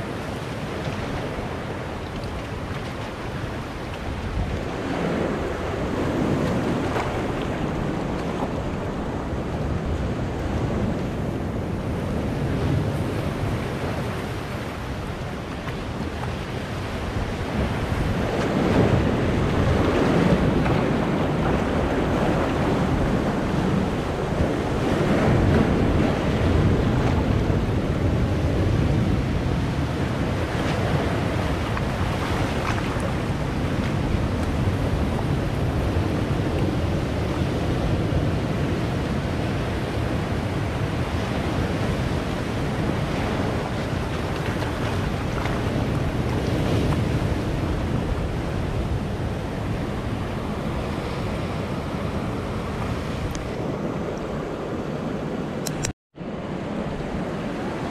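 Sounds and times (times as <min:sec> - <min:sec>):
waves breaking among boulders: 0:00.0 - 0:57.9.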